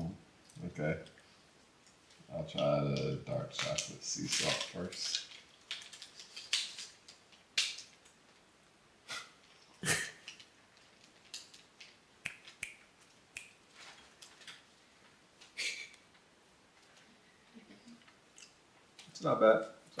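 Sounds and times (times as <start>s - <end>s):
chocolate bar snapping: 3.6s - 8.2s.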